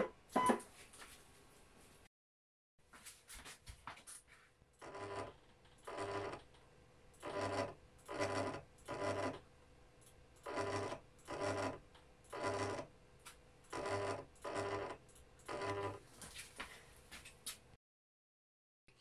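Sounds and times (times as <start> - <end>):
stepper motor buzzing: 7.2 - 9.4, 10.4 - 12.9.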